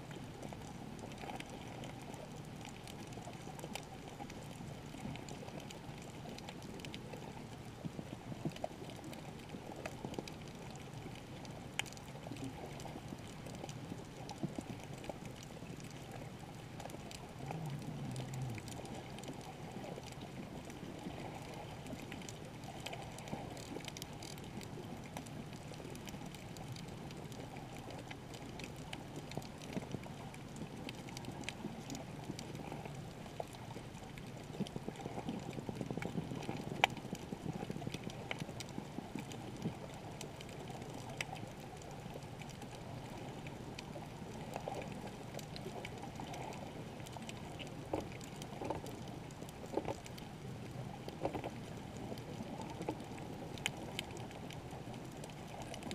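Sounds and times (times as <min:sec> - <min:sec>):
muffled underwater rushing: 0:12.6 - 0:26.1.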